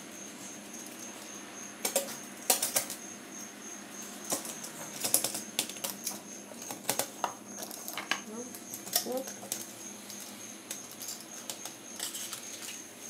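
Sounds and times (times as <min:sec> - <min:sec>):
pizza cutter rolling through crust: 0:04.2 - 0:13.0.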